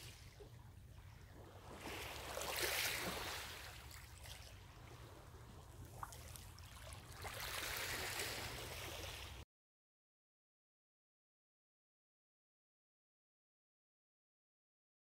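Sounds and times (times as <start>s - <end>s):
waves washing onto pebbles: 1.8s - 3.9s.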